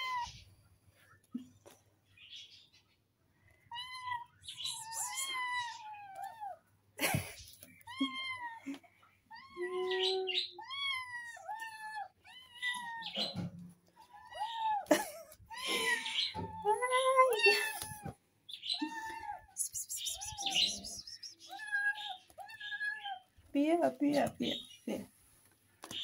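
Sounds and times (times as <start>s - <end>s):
kittens meowing: 0.0s - 0.4s, 3.6s - 6.6s, 7.6s - 23.3s.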